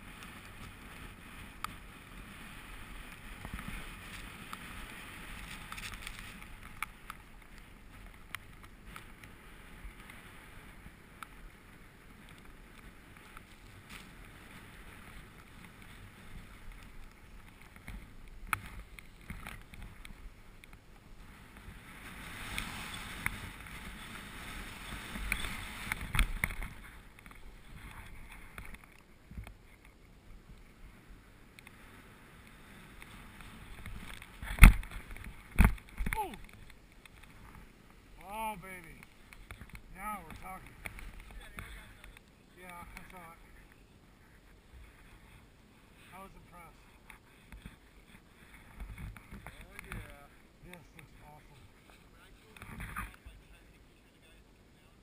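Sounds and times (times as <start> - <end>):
skis sliding through snow: 0.0 - 28.6, 30.7 - 36.3.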